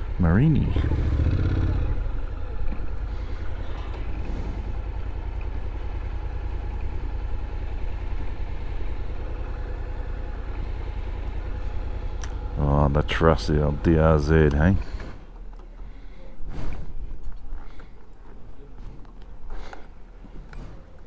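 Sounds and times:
motorcycle engine at low revs: 0.0 - 15.9.

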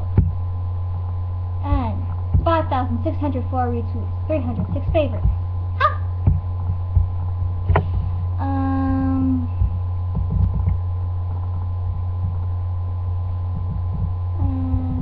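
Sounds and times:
low electrical hum: 0.0 - 15.0
held tone with overtones: 4.0 - 15.0.

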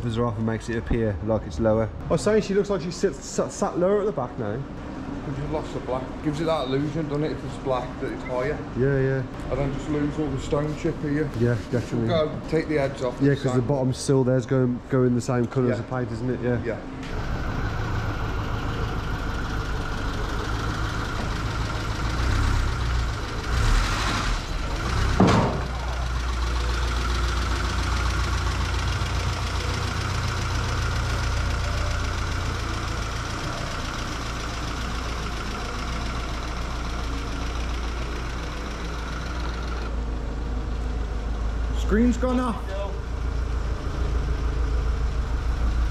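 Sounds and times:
car engine idling: 16.7 - 45.9
engine clatter: 17.0 - 45.9
sharp knock: 25.2 - 25.7.

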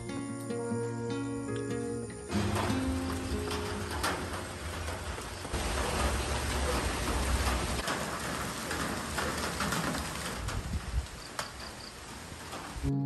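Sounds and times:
steady rain: 2.3 - 12.9.

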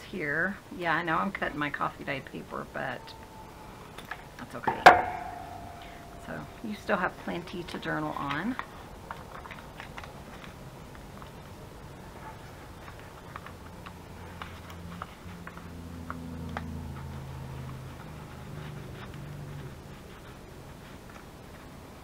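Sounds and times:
low hum: 2.2 - 8.0
paper rustling: 7.4 - 15.8, 16.4 - 22.0.

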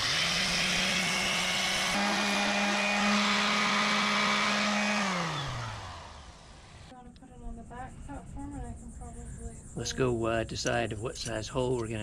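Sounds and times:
orbital sander on plastic: 0.0 - 6.9.

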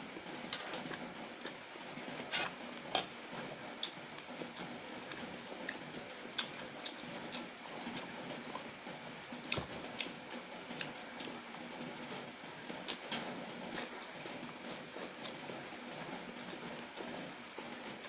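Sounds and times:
person chewing noodles: 3.8 - 8.7, 9.4 - 11.4, 12.8 - 15.4, 16.4 - 16.9.

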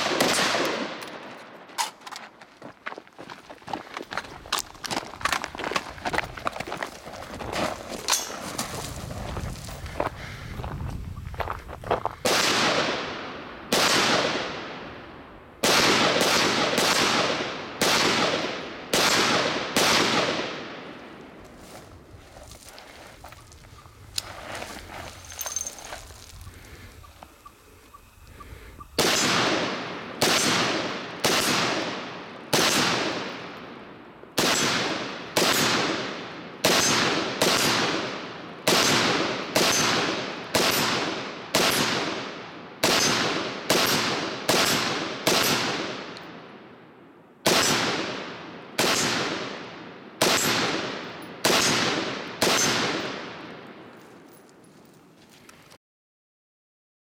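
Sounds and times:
rifle shots with ringing echo: 0.0 - 1.7, 12.2 - 21.2, 28.9 - 46.6, 47.4 - 53.9.

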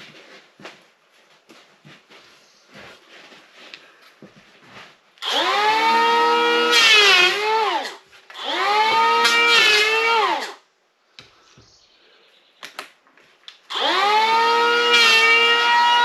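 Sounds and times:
electric planer whining: 5.2 - 10.6, 13.7 - 16.0.

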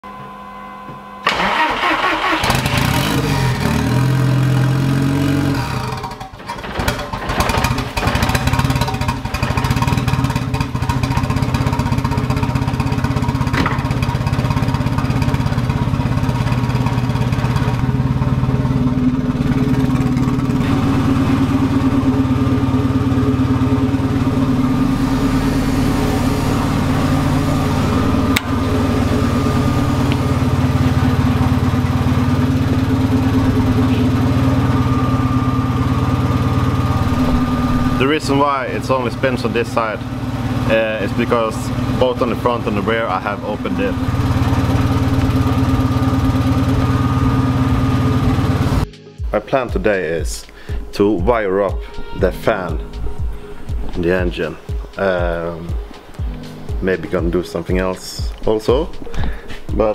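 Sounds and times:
car engine starting and idling: 1.2 - 59.9.

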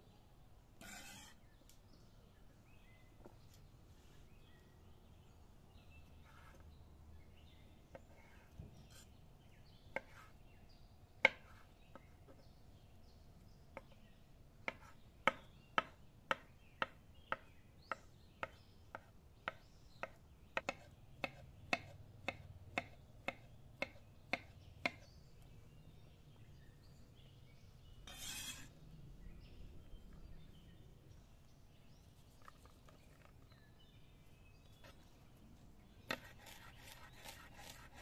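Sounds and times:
knife chopping on stone board: 11.2 - 12.0, 14.7 - 17.5, 18.4 - 25.1, 36.1 - 38.0.

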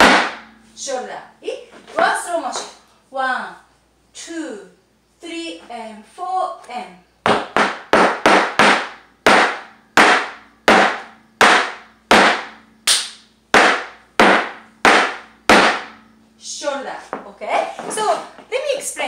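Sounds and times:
shoes stamping on wooden floor: 7.3 - 12.5, 13.6 - 15.9.

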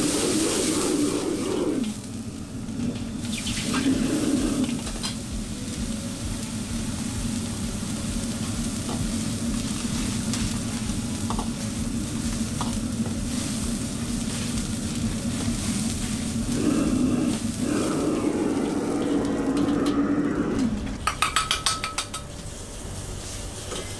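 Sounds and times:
gas burner rushing: 0.0 - 23.9
liquid sizzling in a hot wok: 0.0 - 23.9.

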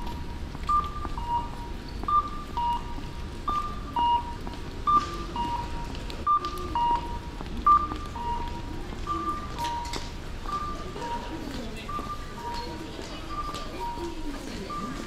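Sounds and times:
low hum of concourse: 0.0 - 15.0.

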